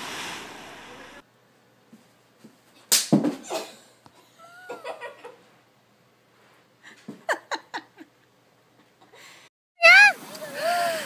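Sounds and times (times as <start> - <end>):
person laughing: 4.3 - 5.4
person crying out: 9.8 - 11.0.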